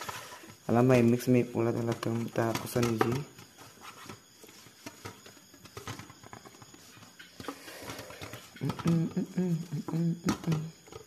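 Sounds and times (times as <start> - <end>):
man humming: 8.6 - 10.8.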